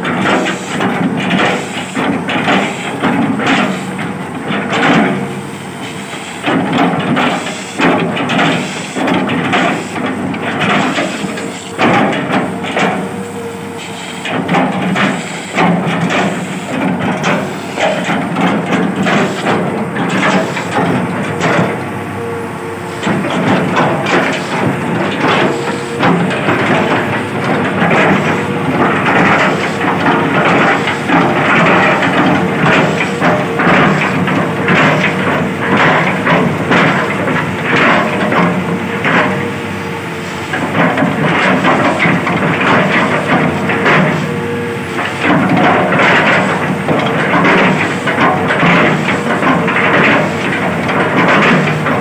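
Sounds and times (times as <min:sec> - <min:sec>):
excavator bucket chopping wood: 0:00.0 - 0:05.4, 0:13.9 - 0:21.9, 0:23.0 - 0:39.6, 0:40.5 - 0:52.0
excavator engine running: 0:00.0 - 0:52.0.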